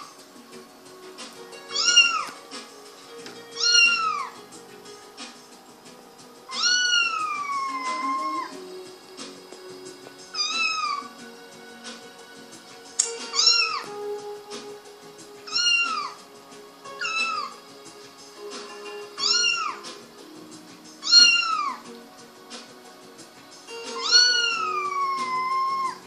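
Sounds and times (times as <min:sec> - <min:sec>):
kitten meowing: 0:01.7 - 0:02.4, 0:03.6 - 0:04.4, 0:06.5 - 0:08.5, 0:10.4 - 0:11.0, 0:13.3 - 0:13.8, 0:15.5 - 0:16.2, 0:17.0 - 0:17.5, 0:19.2 - 0:19.8, 0:21.0 - 0:21.8, 0:24.0 - 0:26.0.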